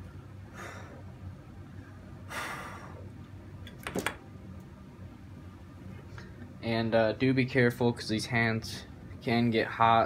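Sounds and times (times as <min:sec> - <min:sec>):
steady low hum: 0:00.0 - 0:10.0
soft breath: 0:00.4 - 0:01.1.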